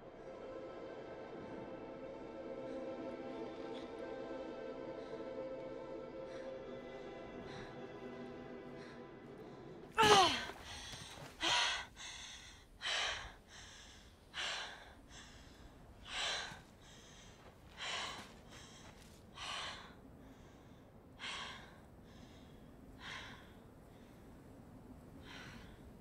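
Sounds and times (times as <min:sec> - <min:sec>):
woman breathing hard: 0:05.0 - 0:26.0
backpack thudding on ground: 0:10.0 - 0:11.0
falling groan: 0:10.0 - 0:11.8.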